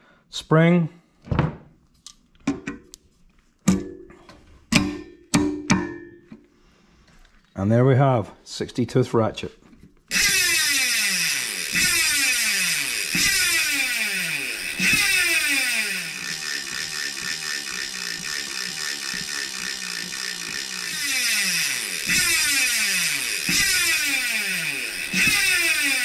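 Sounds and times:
bicycle hub ratchet buzz: 10.1s - 26.0s
slower ratchet clicking: 10.1s - 26.0s.

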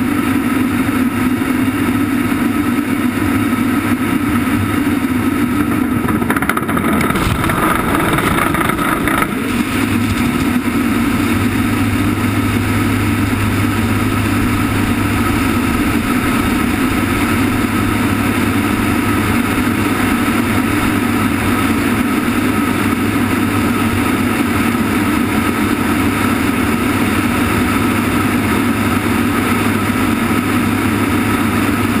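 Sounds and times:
aircraft engines droning: 0.0s - 32.0s
slipstream rushing: 4.8s - 24.2s.

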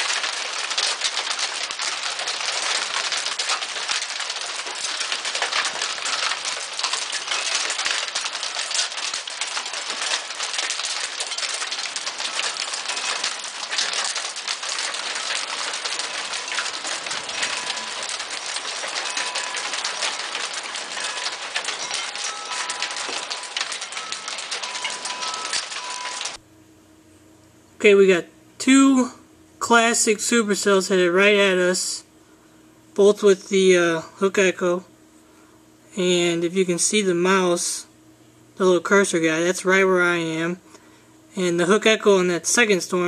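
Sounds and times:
hail and rain on wooden deck: 0.0s - 26.4s.

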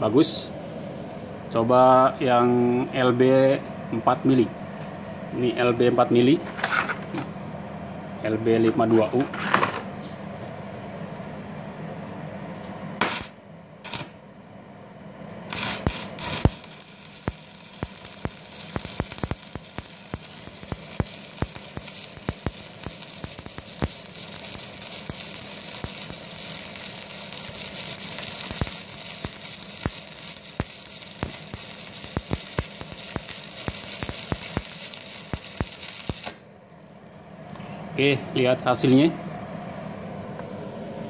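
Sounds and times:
welding arc crackling and popping: 13.0s - 14.2s, 15.3s - 37.4s.

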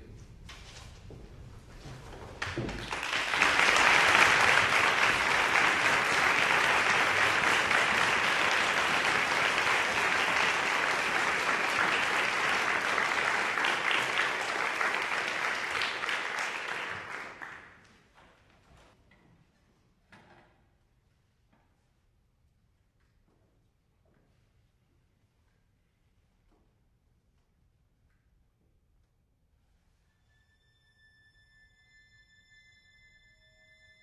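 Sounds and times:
audience applauding: 2.4s - 17.9s.

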